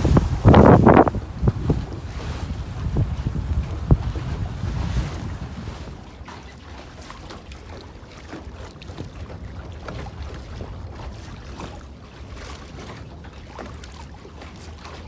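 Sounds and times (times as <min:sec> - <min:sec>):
wind buffeting microphone: 0:00.0 - 0:06.4
water splashing against hull: 0:00.0 - 0:15.0.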